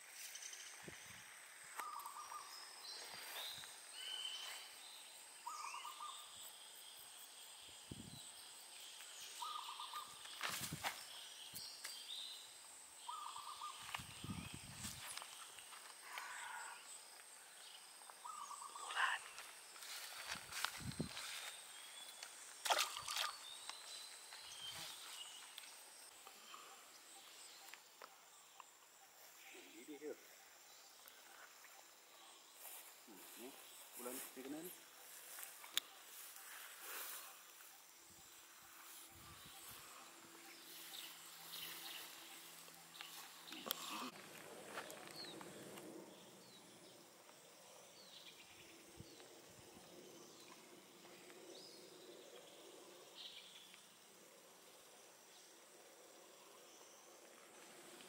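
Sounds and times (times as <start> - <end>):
outdoor background hiss: 0.0 - 58.0
faint chirps: 0.1 - 20.3, 21.0 - 58.0
splash in pond water: 22.6 - 23.5.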